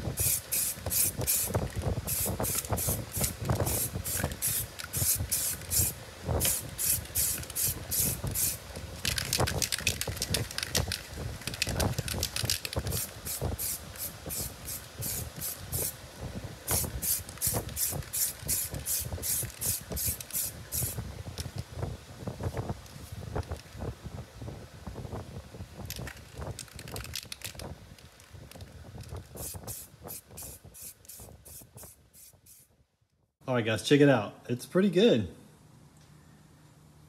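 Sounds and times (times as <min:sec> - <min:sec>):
aerosol spray can hissing: 0:00.0 - 0:10.8, 0:11.5 - 0:16.0, 0:16.7 - 0:21.0, 0:29.4 - 0:32.7.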